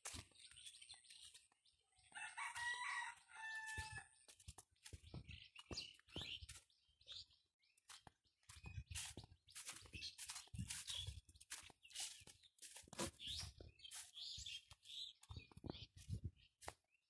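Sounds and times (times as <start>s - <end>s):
footsteps on dry leaves: 0.0s - 1.6s, 2.2s - 6.8s, 7.8s - 16.8s
rooster crowing: 2.1s - 4.2s.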